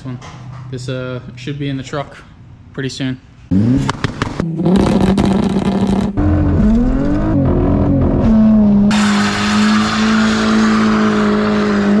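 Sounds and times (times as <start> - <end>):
car engine revving: 3.5 - 12.0.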